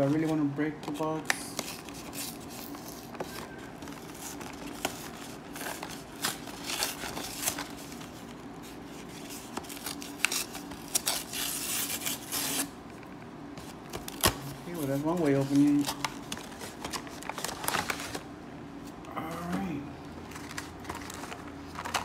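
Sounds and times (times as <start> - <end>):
packaging snapping and crinkling: 13.9 - 18.2, 20.3 - 22.0.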